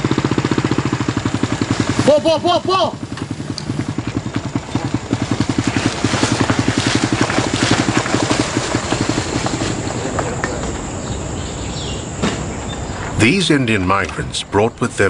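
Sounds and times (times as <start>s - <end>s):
small motorcycle engine puttering: 0.0s - 11.2s.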